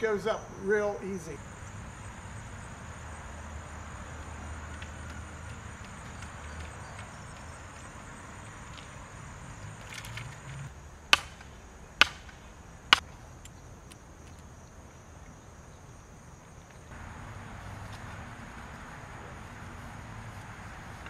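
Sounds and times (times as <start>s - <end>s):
high insect drone: 0.0s - 21.0s
sledgehammer driving wooden stake: 9.8s - 13.1s.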